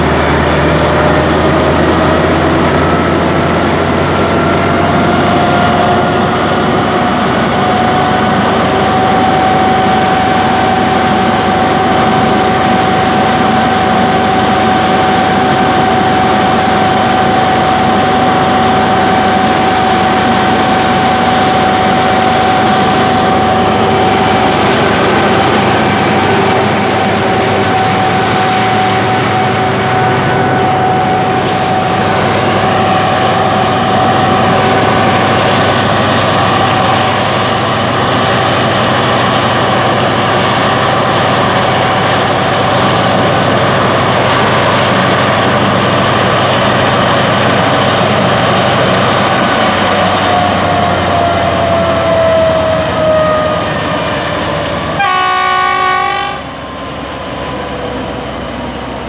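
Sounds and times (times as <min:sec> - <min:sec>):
locomotive engine rumble: 0:00.0 - 0:59.0
steady high whine: 0:00.0 - 0:59.0.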